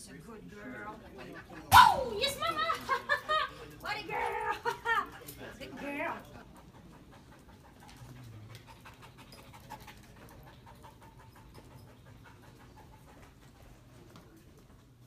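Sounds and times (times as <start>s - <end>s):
dog panting: 5.3s - 14.9s.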